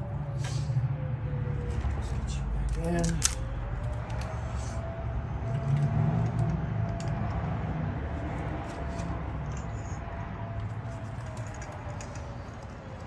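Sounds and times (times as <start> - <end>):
hand tools clicking and clinking: 10.9 - 13.0.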